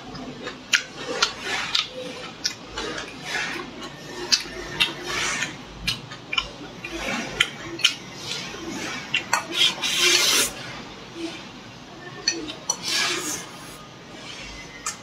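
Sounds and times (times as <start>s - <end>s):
chewing and lip smacking: 5.8s - 8.0s.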